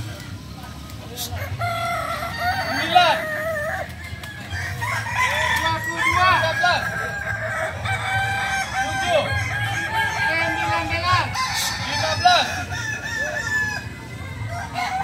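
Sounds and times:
roosters crowing: 0:01.1 - 0:15.0.

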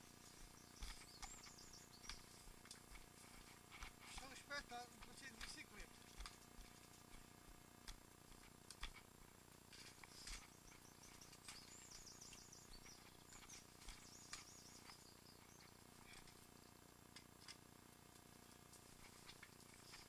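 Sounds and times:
small bird chirping: 0:00.0 - 0:03.6, 0:10.1 - 0:16.8
faint clicks: 0:07.8 - 0:09.1.

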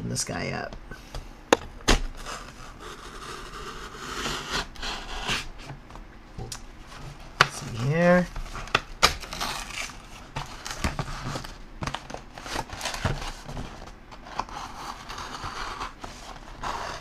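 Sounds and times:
knife cutting cardboard: 0:02.2 - 0:05.6, 0:07.4 - 0:11.5, 0:12.4 - 0:17.0
cardboard box rustling and scraping: 0:06.8 - 0:17.0.

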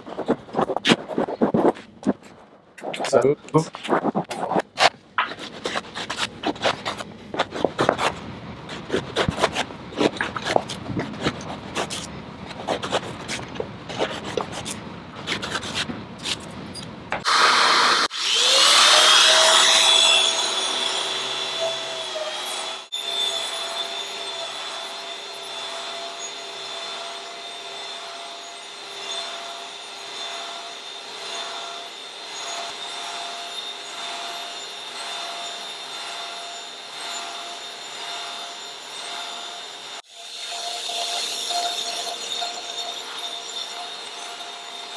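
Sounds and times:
hand rubbing rug pile: 0:00.0 - 0:07.9
rug shearing machine whine: 0:17.1 - 0:44.9.

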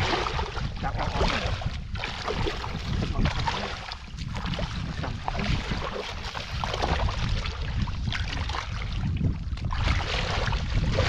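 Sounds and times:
feet splashing through muddy water: 0:00.0 - 0:11.0
steady wash of water: 0:00.0 - 0:11.0.

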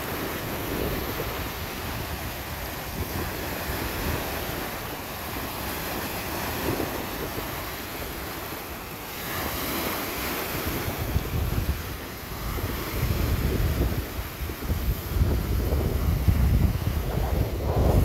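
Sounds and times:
waves washing onto pebbles: 0:00.0 - 0:18.0
wind buffeting microphone: 0:00.0 - 0:18.0.

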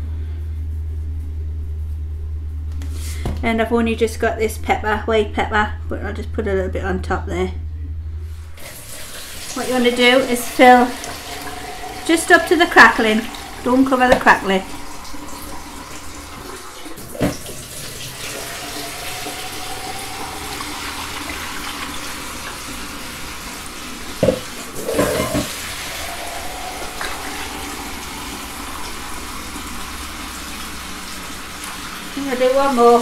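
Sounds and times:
water running: 0:08.6 - 0:33.0.

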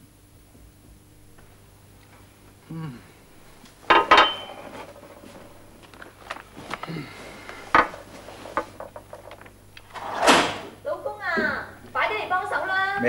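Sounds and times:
cup clinking on glass table: 0:03.9 - 0:05.4
soft knocks and rustles: 0:03.9 - 0:09.6.

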